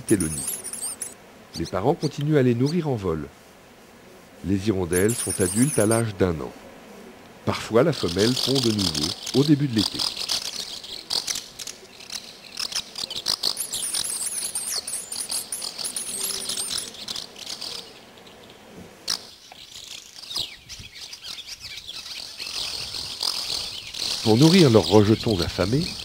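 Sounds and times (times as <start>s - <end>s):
high wavering bird trills: 0.0s - 1.2s, 4.9s - 6.2s, 8.0s - 26.0s
swallows twittering: 0.0s - 2.9s, 4.9s - 6.3s, 7.5s - 26.0s.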